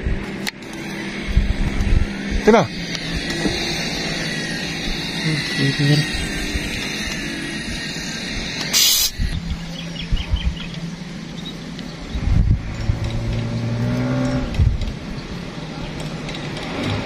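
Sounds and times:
vehicle engines humming: 0:00.0 - 0:17.0
short sharp hiss: 0:08.6 - 0:09.2.

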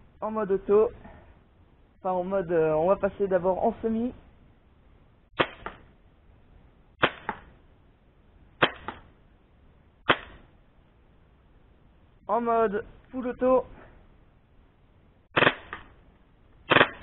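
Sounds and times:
airsoft gun shots: 0:05.4 - 0:05.9, 0:07.0 - 0:07.6, 0:08.6 - 0:09.2, 0:10.0 - 0:10.5, 0:15.3 - 0:16.0, 0:16.6 - 0:17.0.

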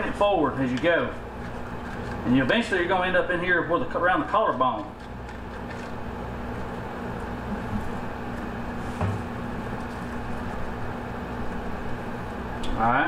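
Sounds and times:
low mechanical hum: 0:00.0 - 0:13.0
soft knock: 0:09.0 - 0:09.3.

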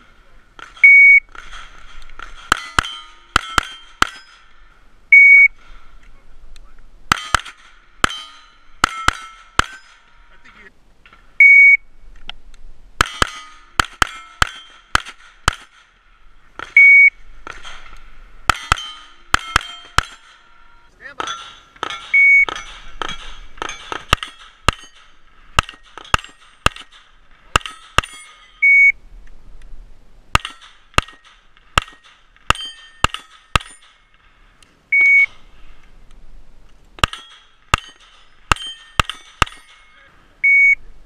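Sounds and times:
shot timer beep: 0:00.8 - 0:01.2, 0:05.1 - 0:05.5, 0:11.4 - 0:11.8, 0:16.8 - 0:17.2, 0:22.2 - 0:22.5, 0:28.6 - 0:29.0, 0:35.0 - 0:35.3, 0:40.4 - 0:40.8
pistol shots: 0:07.1 - 0:10.0, 0:13.0 - 0:16.0, 0:18.5 - 0:20.5, 0:21.2 - 0:28.3, 0:30.3 - 0:34.2, 0:37.0 - 0:39.8.

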